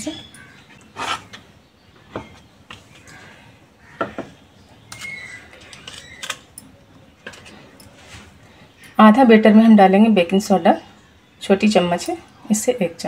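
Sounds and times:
plastic bowl and utensils knocking: 0:04.0 - 0:04.4.

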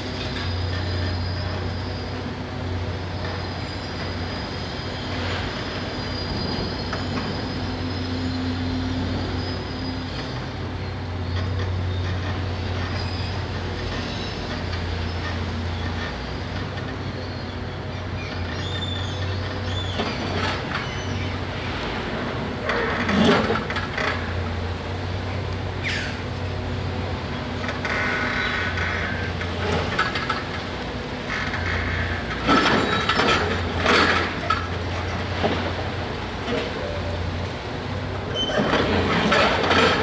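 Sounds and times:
excavator diesel engine droning: 0:00.0 - 0:40.0
high-pitched metallic squeals: 0:00.1 - 0:15.9, 0:38.3 - 0:40.0.

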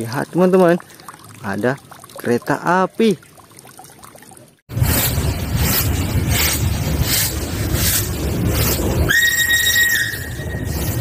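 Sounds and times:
steam locomotive exhaust chuffs: 0:04.7 - 0:11.0
steam whistle: 0:09.0 - 0:11.0.

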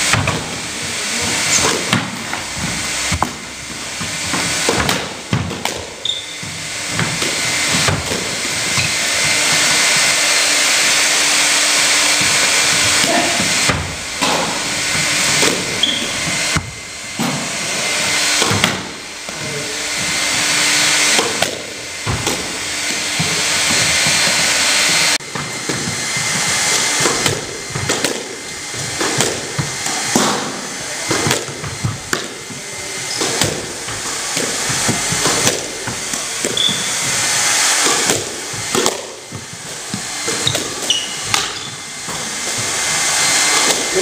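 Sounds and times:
squash ball knocks: 0:01.6 - 0:08.4, 0:18.4 - 0:19.4, 0:25.3 - 0:32.4, 0:33.2 - 0:42.8
shoes squeaking on court floor: 0:06.0 - 0:13.7, 0:14.9 - 0:16.6, 0:32.9 - 0:37.8, 0:39.3 - 0:43.6.

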